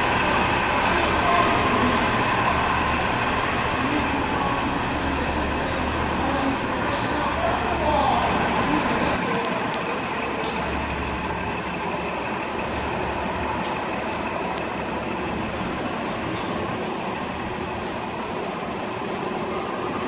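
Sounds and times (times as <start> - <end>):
transit vehicle running noise: 0.0 - 20.0.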